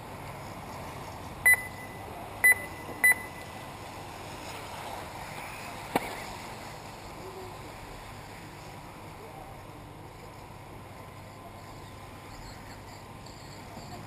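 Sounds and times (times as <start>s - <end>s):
outdoor noise: 0.0s - 14.0s
short electronic beeps: 1.4s - 3.5s.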